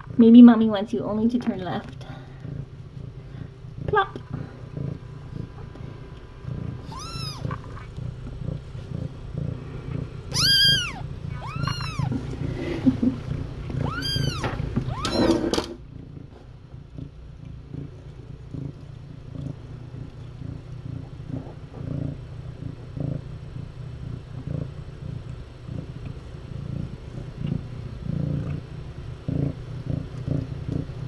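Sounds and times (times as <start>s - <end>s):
cat purring: 0.0s - 31.0s
kittens meowing: 6.8s - 7.9s, 10.3s - 12.2s, 13.8s - 15.4s.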